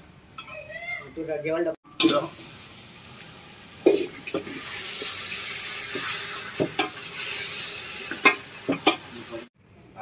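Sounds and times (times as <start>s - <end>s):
chicken sizzling in hot oil: 1.9s - 9.5s.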